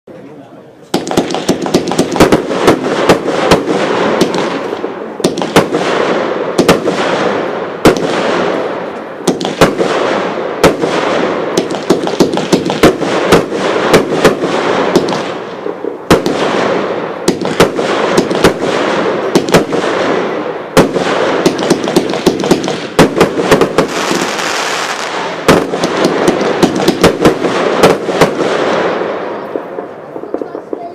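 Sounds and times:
firework bangs: 0:00.8 - 0:30.9
firework hiss: 0:23.8 - 0:25.5.

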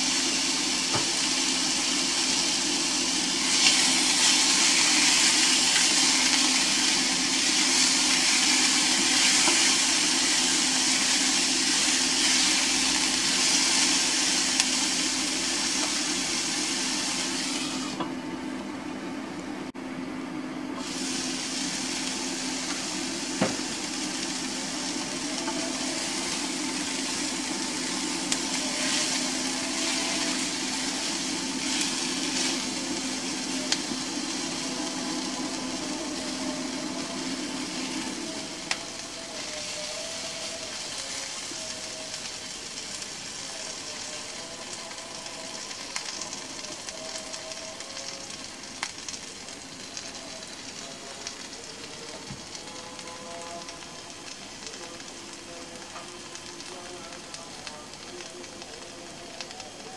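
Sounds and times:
vegetables sizzling in a frying pan: 0:00.0 - 0:18.1, 0:20.8 - 0:59.9.

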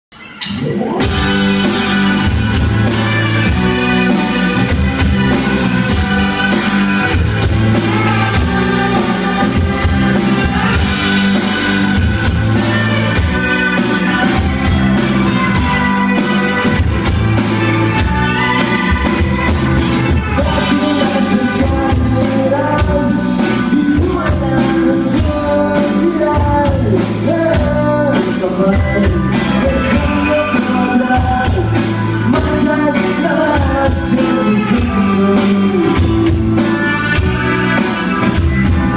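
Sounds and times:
rock band playing: 0:00.1 - 0:38.9
man singing: 0:05.9 - 0:16.8, 0:20.1 - 0:37.8.

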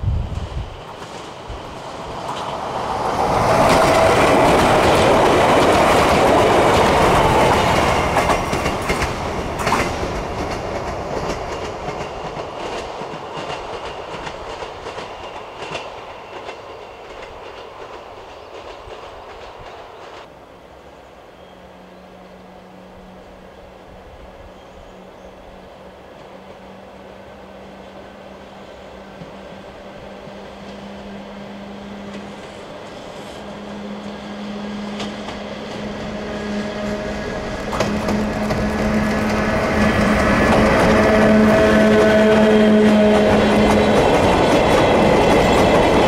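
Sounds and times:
train passing: 0:00.0 - 0:46.0
wheels clacking over rail joints: 0:00.8 - 0:20.3, 0:31.8 - 0:46.0.

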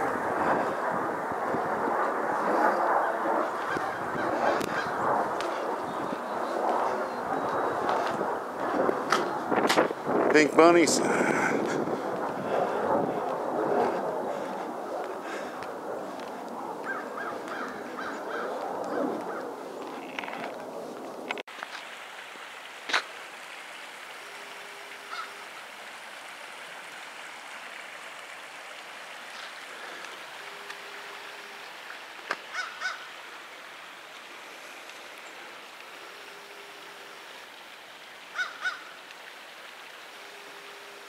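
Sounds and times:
outdoor hiss of wind or water: 0:00.0 - 0:41.0
short bird calls: 0:32.5 - 0:33.1, 0:38.3 - 0:39.0.

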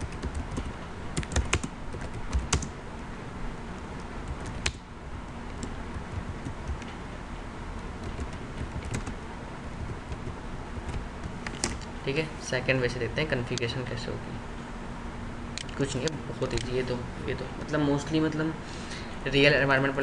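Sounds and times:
keyboard typing clicks: 0:00.0 - 0:02.7, 0:04.3 - 0:04.8, 0:08.0 - 0:09.2, 0:09.8 - 0:11.9.

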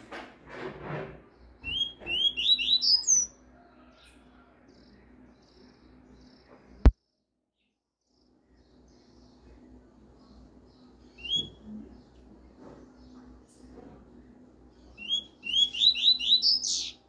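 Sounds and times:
bird singing whistled notes: 0:01.6 - 0:03.4, 0:11.0 - 0:11.7, 0:14.9 - 0:17.0.

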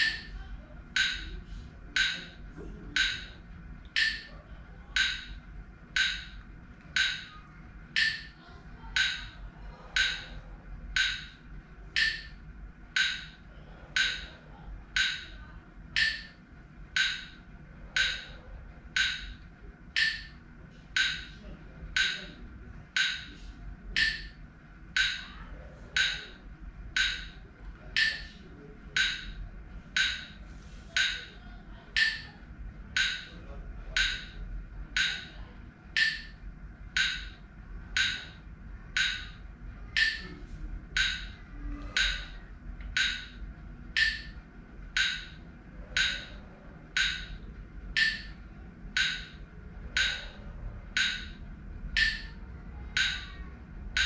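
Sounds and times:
metronome ticking: 0:00.0 - 0:30.4, 0:31.0 - 0:54.0.

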